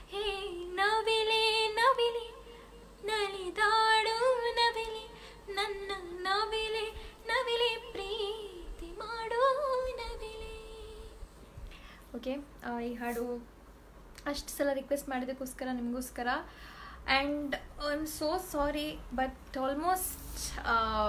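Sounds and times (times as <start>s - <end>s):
woman singing unaccompanied: 0.0s - 11.3s, 17.1s - 21.0s.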